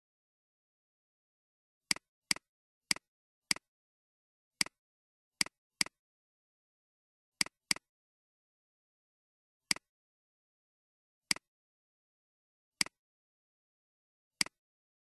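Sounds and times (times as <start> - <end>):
computer mouse clicks: 1.9 - 3.7, 4.6 - 4.8, 5.4 - 6.0, 7.4 - 7.9, 12.8 - 13.0, 14.4 - 14.6.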